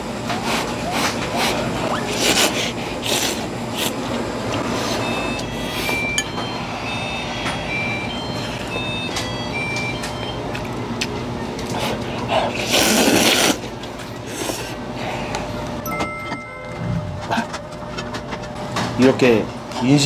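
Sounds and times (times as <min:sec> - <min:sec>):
noodles slurped and chewed: 0:00.5 - 0:05.0, 0:11.8 - 0:13.7.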